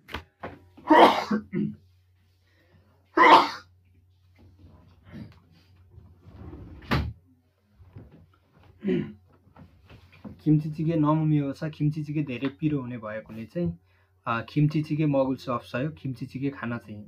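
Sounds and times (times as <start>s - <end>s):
low electrical hum: 0.0s - 17.0s
person coughing: 0.8s - 1.8s, 3.2s - 3.7s.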